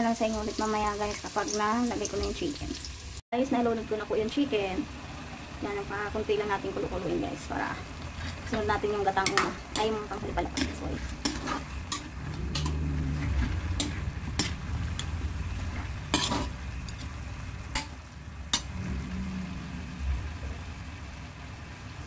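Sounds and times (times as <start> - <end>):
light sizzle: 0.0 - 22.0
low steady rumble: 3.5 - 22.0
metal ladle scraping a wok: 7.6 - 19.0.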